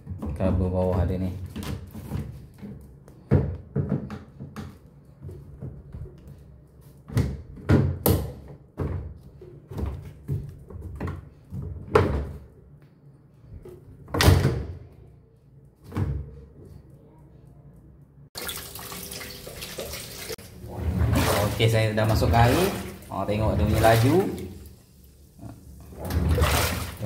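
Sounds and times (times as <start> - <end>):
water running into tub: 18.4 - 27.0.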